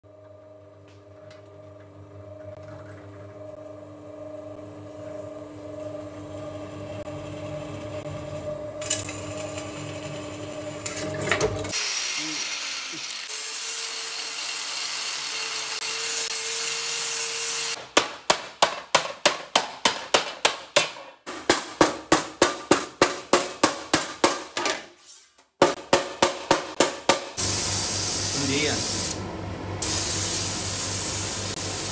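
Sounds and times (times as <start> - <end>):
angle grinder grinding metal: 5.8 - 17.8.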